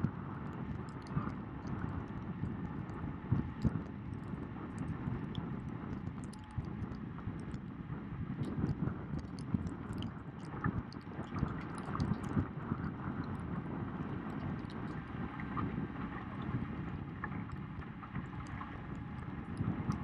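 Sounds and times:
wind rumbling on microphone: 0.0s - 20.0s
faint ticks: 4.8s - 7.7s
water splashes: 8.4s - 12.4s.

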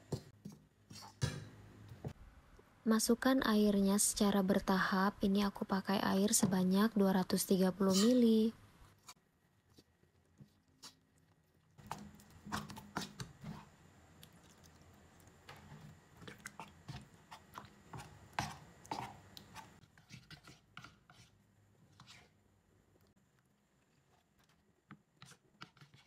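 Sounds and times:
metal spoon scraping bowl: 7.9s - 8.3s.

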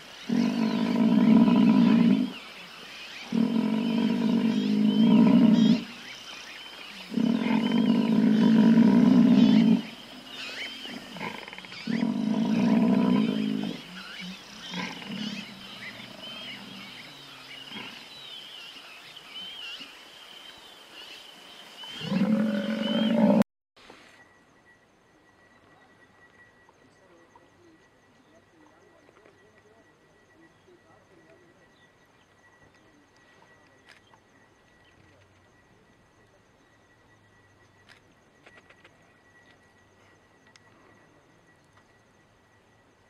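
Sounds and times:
large animal calling: 7.0s - 18.0s, 21.9s - 23.4s.

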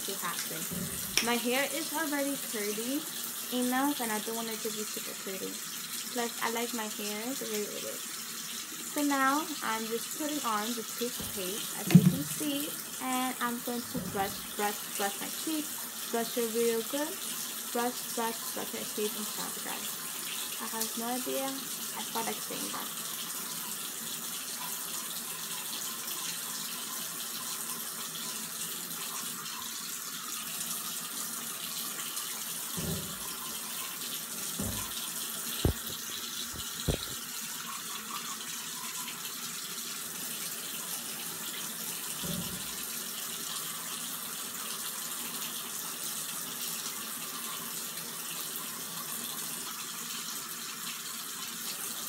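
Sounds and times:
tap running into sink: 0.3s - 1.4s, 11.0s - 12.8s, 13.6s - 14.8s, 32.7s - 37.2s, 42.2s - 42.8s
soft thumps: 0.7s - 1.2s, 11.2s - 12.4s, 32.8s - 33.4s, 34.6s - 35.0s, 35.6s - 37.2s.

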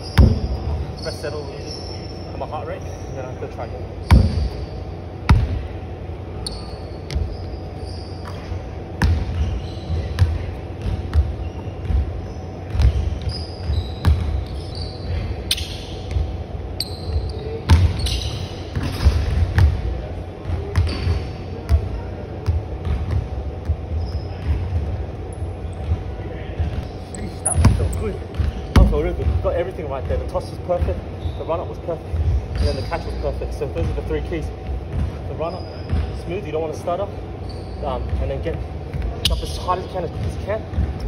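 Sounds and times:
sneaker squeaks: 0.0s - 5.6s, 6.4s - 19.8s, 20.4s - 41.0s
basketball bouncing on hardwood: 27.6s - 29.4s.

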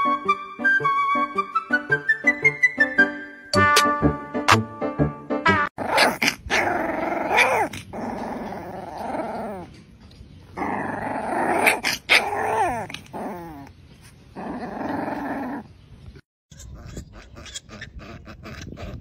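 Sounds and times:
puppy yelping: 5.8s - 9.7s, 10.6s - 13.7s
puppy growling in play: 5.8s - 9.8s, 10.5s - 15.7s.

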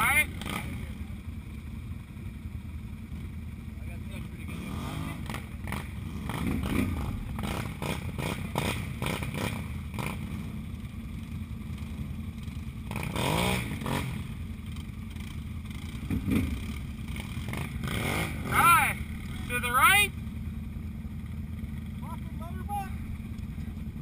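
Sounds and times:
quad engine revving: 0.0s - 1.1s, 3.8s - 10.6s, 11.7s - 20.2s
atv engines running: 0.0s - 24.0s.

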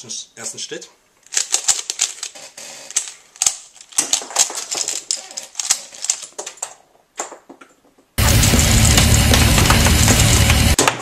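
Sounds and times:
plastic puzzle cube clicking: 1.2s - 7.8s.

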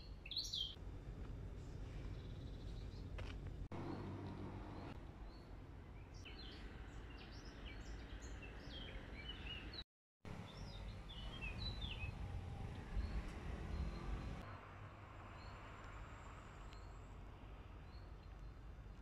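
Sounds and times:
small songbirds chirping: 0.0s - 0.8s, 1.5s - 14.6s, 15.2s - 19.0s
low steady rumble: 0.8s - 6.1s.

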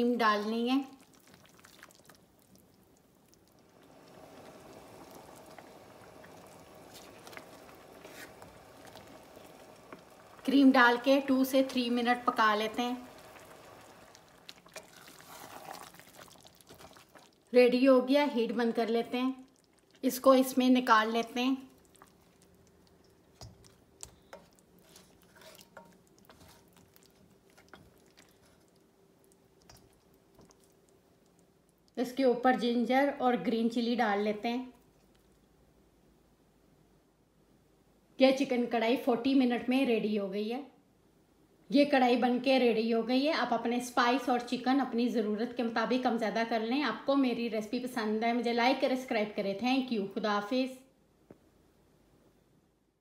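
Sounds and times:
faint steady hum: 0.0s - 53.0s
cream sauce bubbling in a pan: 0.4s - 32.6s.

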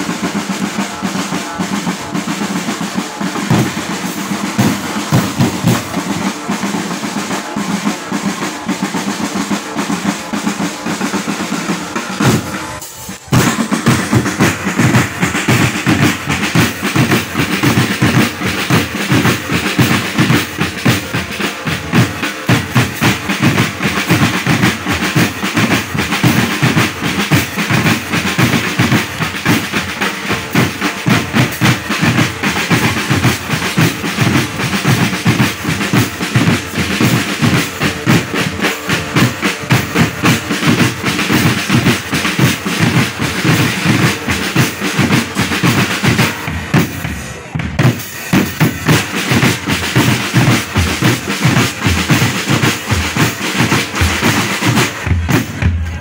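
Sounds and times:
snare drums rolling: 0.0s - 56.0s
bass drums beating: 45.0s - 56.0s.

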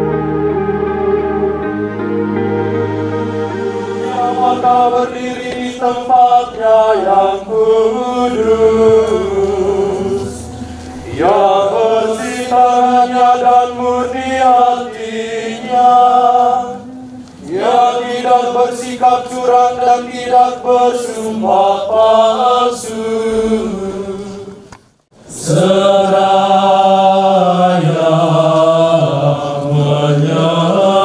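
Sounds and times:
low sustained instrumental music: 0.0s - 5.8s, 7.3s - 17.8s
group of voices chanting: 3.9s - 24.6s.

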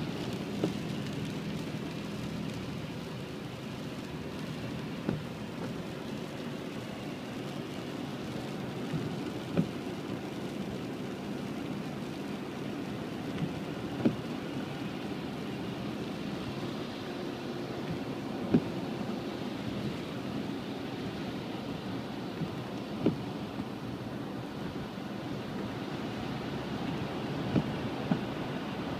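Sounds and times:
rain on a car: 0.0s - 28.9s
tyres on a wet road: 0.0s - 28.9s
windscreen wipers knocking: 0.4s - 1.0s, 5.0s - 5.9s, 8.9s - 9.8s, 13.4s - 14.3s, 17.8s - 18.9s, 22.3s - 23.8s, 26.8s - 28.9s.

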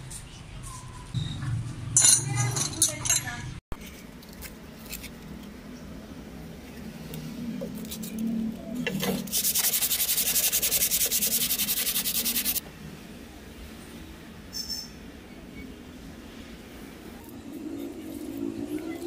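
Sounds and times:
sandpaper rubbing on wood: 9.2s - 12.6s.

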